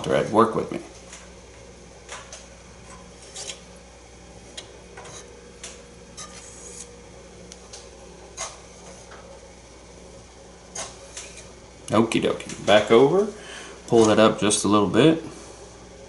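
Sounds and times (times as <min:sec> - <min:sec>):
faint steady hum: 0:00.0 - 0:16.0
hand brushing work surface: 0:06.2 - 0:06.9.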